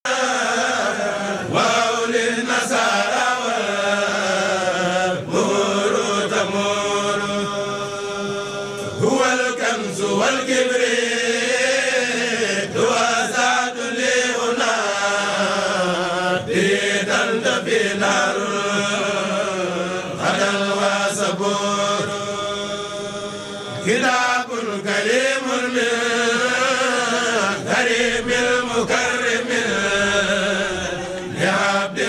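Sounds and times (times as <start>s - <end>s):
voices chanting devotional verse: 0.0s - 32.0s.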